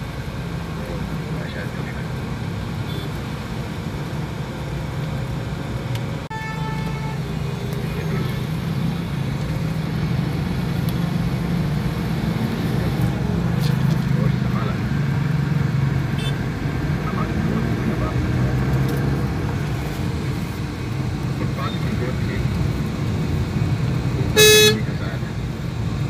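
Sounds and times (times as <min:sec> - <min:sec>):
car engine and road hum: 0:00.0 - 0:26.0
vehicle horn beep: 0:06.3 - 0:07.2, 0:16.2 - 0:16.4, 0:24.4 - 0:24.9.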